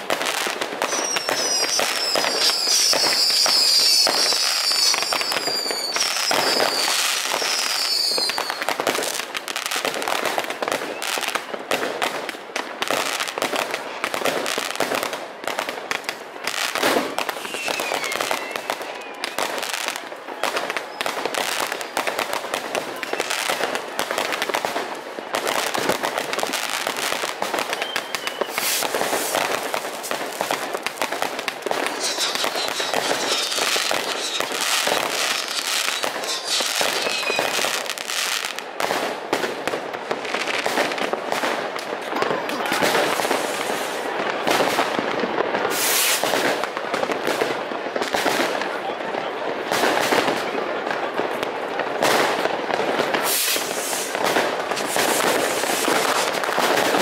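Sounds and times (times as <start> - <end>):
fireworks crackling and banging: 0.0 - 57.0
rocket whistles: 0.8 - 8.7, 17.2 - 19.5, 27.6 - 29.7, 30.5 - 38.6.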